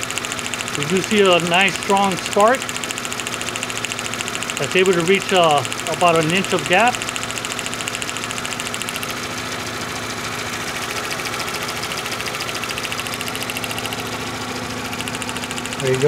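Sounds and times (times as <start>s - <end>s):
spark ticking: 0.0s - 9.2s, 14.9s - 16.0s
car engine idling: 0.4s - 16.0s.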